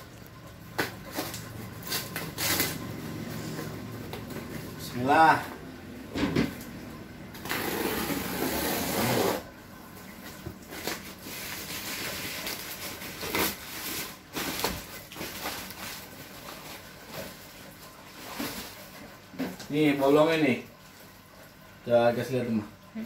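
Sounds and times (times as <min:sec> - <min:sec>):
plastic rustling and crinkling: 0:00.1 - 0:04.8, 0:10.0 - 0:20.0
plastic wrapping tearing: 0:00.8 - 0:03.0, 0:10.7 - 0:17.4.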